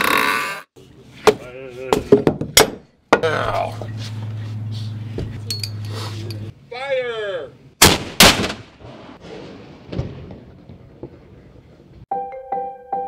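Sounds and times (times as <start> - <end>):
cannon firing loud bangs: 7.8 - 10.9.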